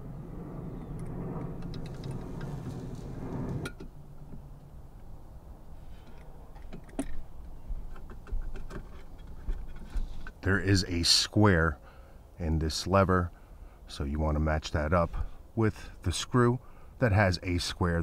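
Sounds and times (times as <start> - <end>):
steady low hum: 0.0 - 8.0.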